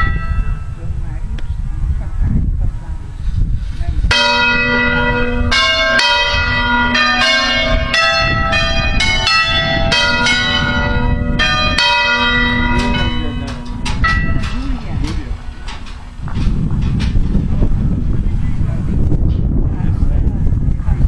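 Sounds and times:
church bells ringing: 0.0s - 1.0s, 4.1s - 16.2s.

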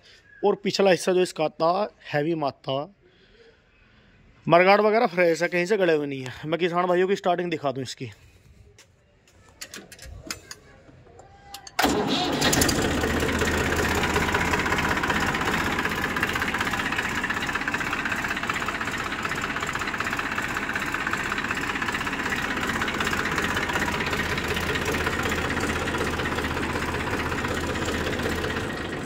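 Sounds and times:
tractor diesel engine idling: 9.6s - 29.0s.

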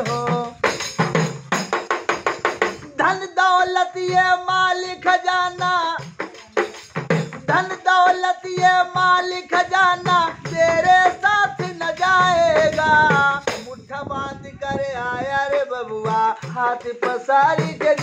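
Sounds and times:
man singing: 0.0s - 1.2s, 2.8s - 18.0s
tambourine beaten with jingles: 0.0s - 3.0s, 5.5s - 9.0s.

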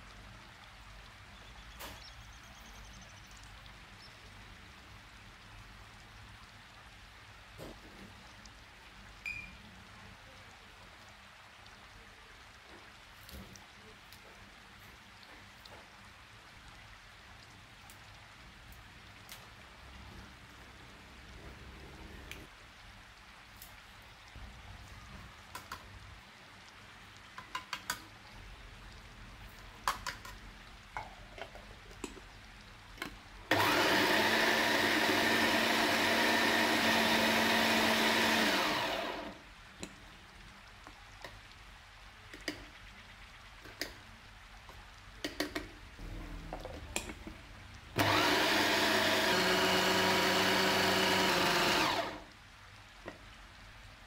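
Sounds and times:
electric food chopper running: 33.5s - 39.4s, 48.0s - 52.3s
bowl and lid clicks and taps: 45.2s - 45.7s.

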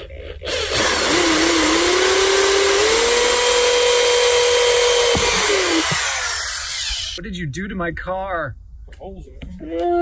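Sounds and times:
power drill boring through plastic: 0.5s - 7.2s.

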